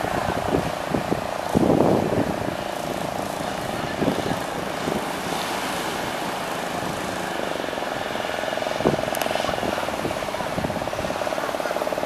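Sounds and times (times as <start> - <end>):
breaking surf: 0.0 - 12.0
outboard motor running: 0.0 - 12.0.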